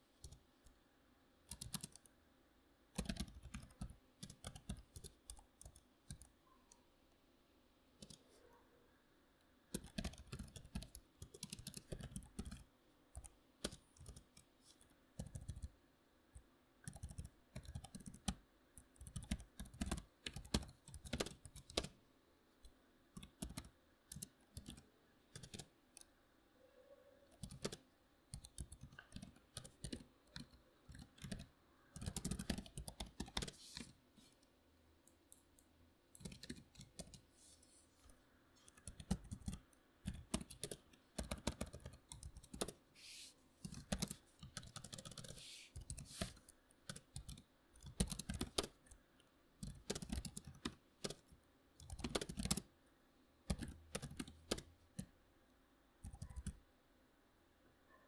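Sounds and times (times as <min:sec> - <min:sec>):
soft keyboard key clicks: 0:56.0 - 0:56.6.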